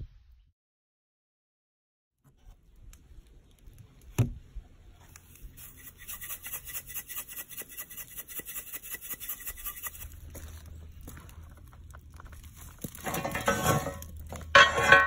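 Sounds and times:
shaker rattling seasoning: 5.5s - 10.2s.

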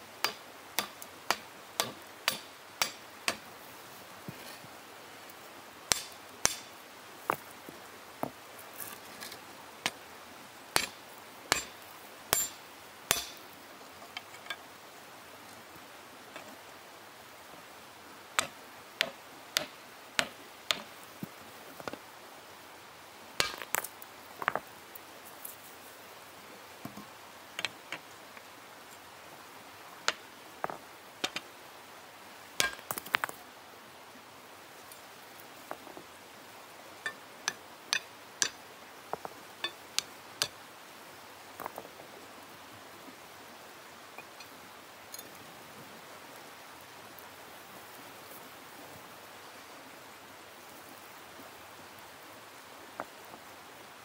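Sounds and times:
stone hammer striking iron: 0.2s - 3.4s, 5.9s - 6.8s, 10.8s - 13.4s, 18.4s - 20.9s, 23.4s - 23.7s, 32.6s - 33.0s, 37.1s - 38.6s, 39.6s - 40.6s.

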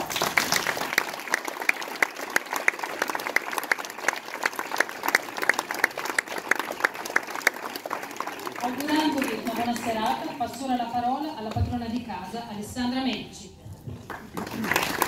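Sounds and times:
close hand claps: 0.0s - 9.6s, 14.0s - 15.0s
audience applauding: 0.0s - 10.6s, 14.0s - 15.0s.

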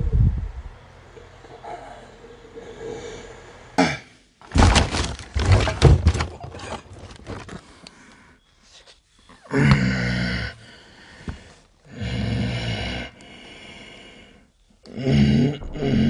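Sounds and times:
thumps and knocks: 4.4s - 7.6s.

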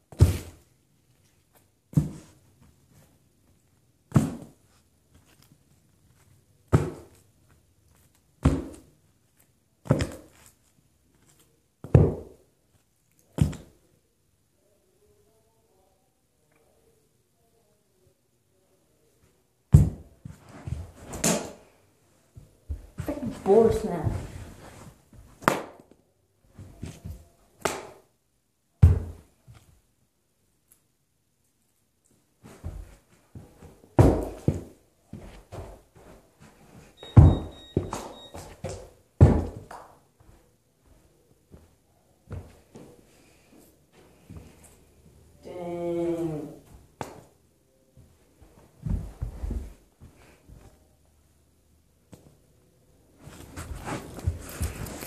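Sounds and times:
knocks and thumps on carpet: 48.8s - 50.7s.

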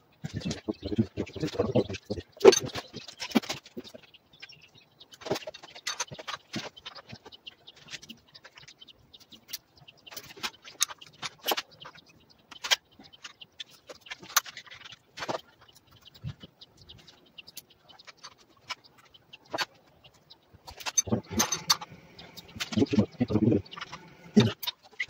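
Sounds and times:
hand tools clinking and scraping: 20.6s - 25.0s.

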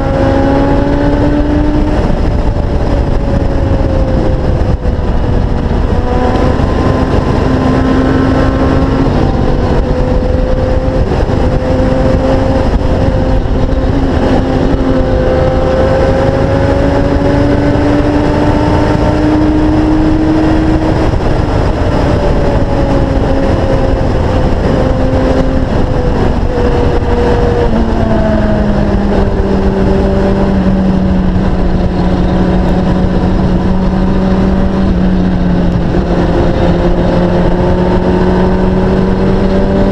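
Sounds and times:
motorcycle engine running: 0.0s - 39.9s
wind rush on microphone: 0.0s - 39.9s.

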